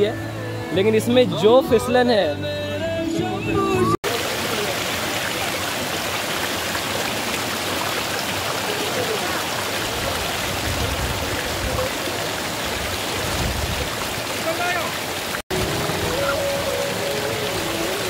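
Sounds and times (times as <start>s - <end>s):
water splashing over rocks: 4.0s - 18.0s.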